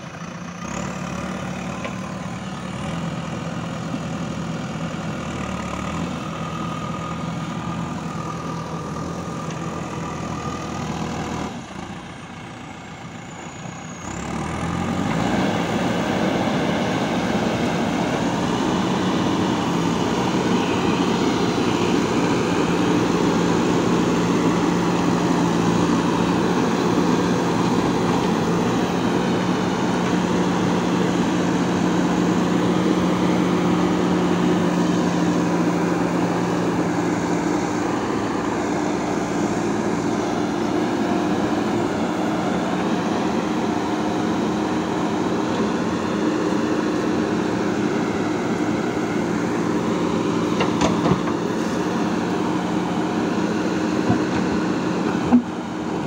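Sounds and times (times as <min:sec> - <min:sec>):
backhoe loader diesel engine: 0:00.0 - 0:56.0.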